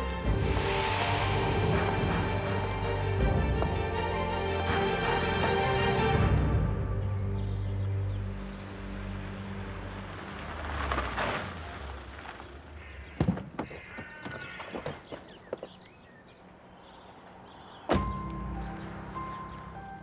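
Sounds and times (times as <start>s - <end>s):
tyres rolling on gravel: 8.5s - 16.2s, 18.2s - 20.0s.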